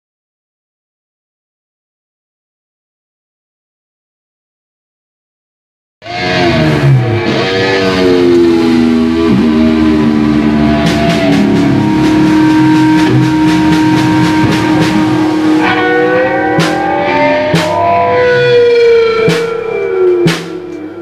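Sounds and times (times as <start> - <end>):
electric guitar bending notes: 6.0 - 21.0
rock band jamming: 6.0 - 21.0
sharp beats: 10.7 - 21.0.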